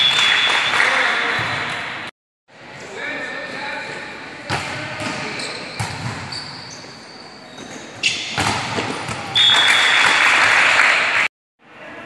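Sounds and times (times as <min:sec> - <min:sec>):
shoes squeaking on court floor: 0:05.0 - 0:10.2
volleyball hits: 0:08.1 - 0:10.4.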